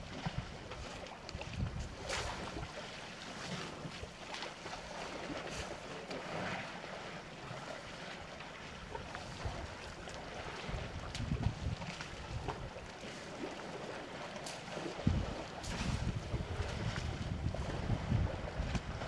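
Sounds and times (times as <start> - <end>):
wind on microphone: 0.0 - 2.8, 8.9 - 12.9, 14.8 - 19.0.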